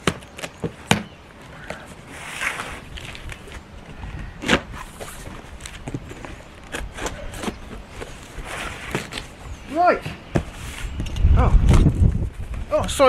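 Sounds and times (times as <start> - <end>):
cardboard flaps rustling: 0.0 - 9.4
wind rumble on microphone: 10.6 - 13.0.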